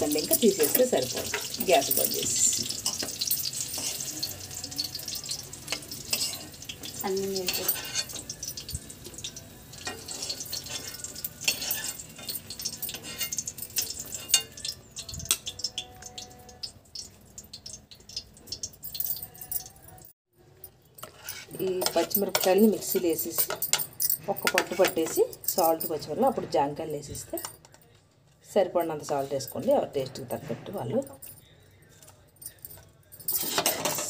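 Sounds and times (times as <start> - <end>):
metal spoon scraping a pan: 0.0 - 16.5, 21.0 - 25.8, 33.3 - 34.0
chillies sizzling in hot oil: 0.0 - 18.7.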